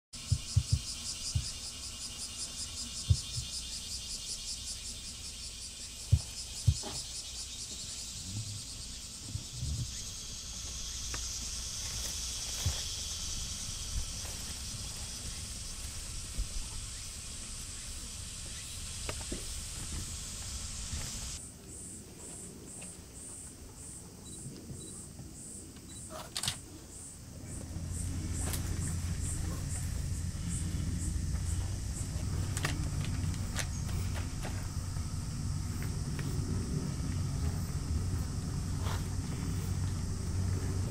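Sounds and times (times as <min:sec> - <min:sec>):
cicadas shrilling: 0:00.2 - 0:40.9
low rumble: 0:27.3 - 0:40.9.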